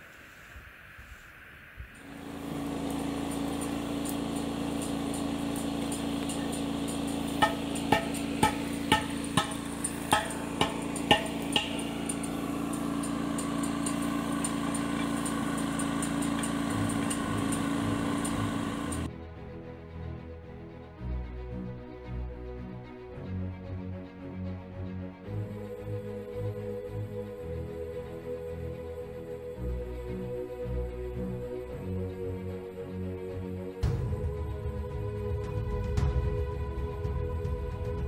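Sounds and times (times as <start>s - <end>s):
hammer blows on metal: 2.0s - 19.1s
engine running: 2.0s - 38.0s.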